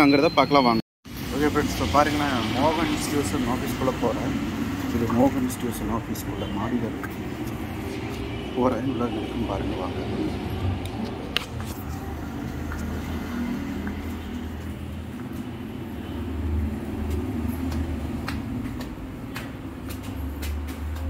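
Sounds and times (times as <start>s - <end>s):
street traffic rumble: 0.0s - 21.0s
footsteps on concrete stairs: 10.8s - 21.0s.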